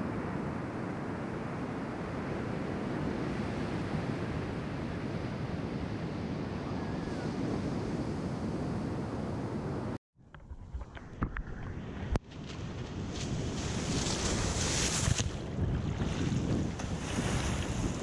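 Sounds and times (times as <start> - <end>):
wind noise on microphone: 0.0 - 18.0
ocean surf breaking: 11.8 - 18.0.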